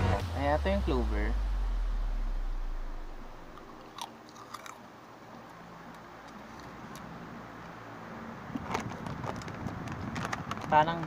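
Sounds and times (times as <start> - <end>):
person chewing crunchy chips: 3.5 - 4.9.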